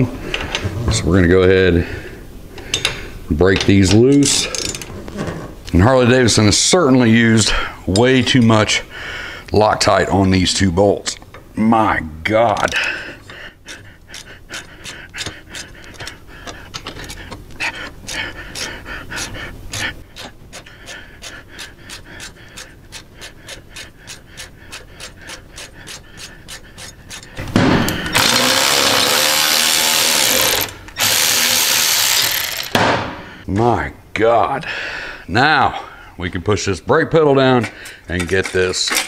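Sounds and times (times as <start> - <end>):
hand ratchet clicking: 12.6 - 32.8
loud power tool running: 28.1 - 32.8.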